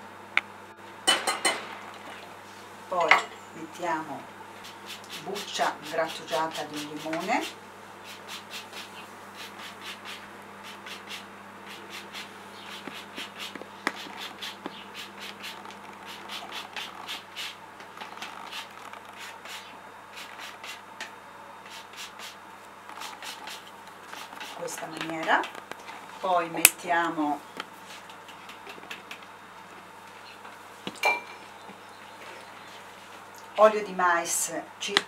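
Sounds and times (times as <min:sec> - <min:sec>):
grater scraping peel: 0:04.6 - 0:20.8.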